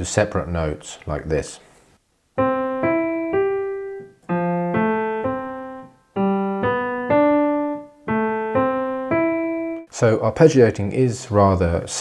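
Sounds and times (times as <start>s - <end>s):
piano arpeggios: 2.4s - 9.9s.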